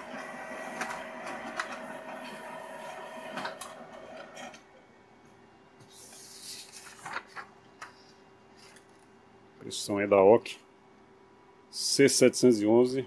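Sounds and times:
laser printer humming: 0:00.0 - 0:04.6
paper rustling: 0:05.9 - 0:09.1.

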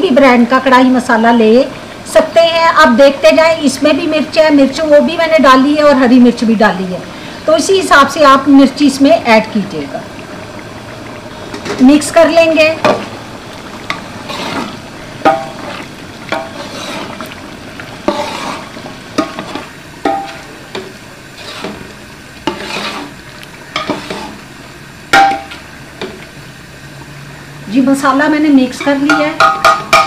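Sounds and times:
soft sizzle of frying: 0:00.0 - 0:30.0
metal ladle scraping a pot: 0:13.9 - 0:17.4, 0:18.0 - 0:24.4.

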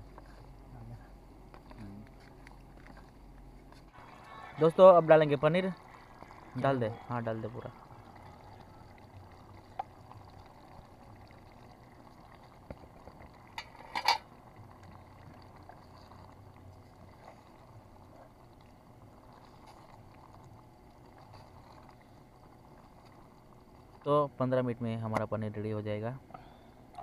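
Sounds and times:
curry bubbling in pot: 0:03.9 - 0:24.4.

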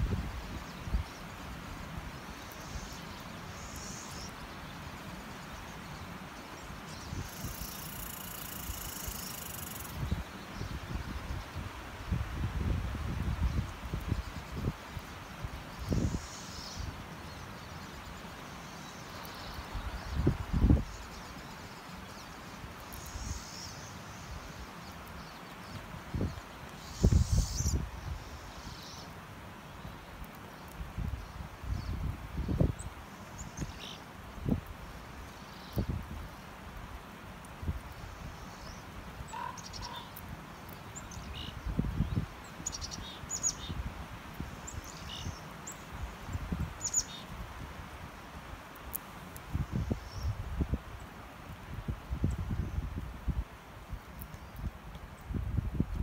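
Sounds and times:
faint high-pitched hiss: 0:00.0 - 0:56.0
wind gusting over microphone: 0:09.9 - 0:14.8, 0:51.6 - 0:53.5, 0:54.6 - 0:56.0
faint high bird calls: 0:38.5 - 0:40.2.

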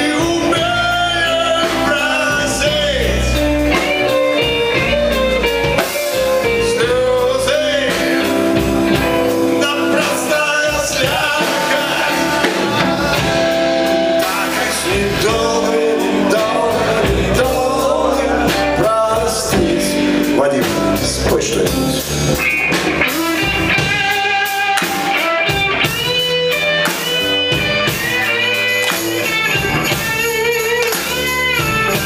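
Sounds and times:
person singing: 0:00.0 - 0:04.8, 0:06.4 - 0:08.7, 0:09.4 - 0:22.1
rock band playing live: 0:00.0 - 0:32.0.

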